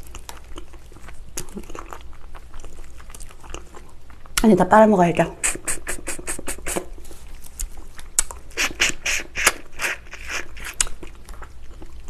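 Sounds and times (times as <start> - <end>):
wet mouth chewing and sucking: 0.0 - 4.5, 5.4 - 12.0.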